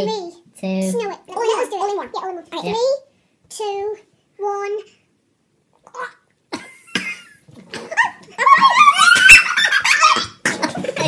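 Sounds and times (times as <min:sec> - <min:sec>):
children crying out: 0:08.4 - 0:10.2.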